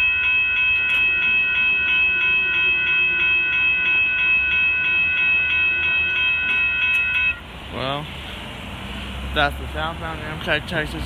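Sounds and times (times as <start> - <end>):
railroad crossing bell ringing: 0.0 - 7.5.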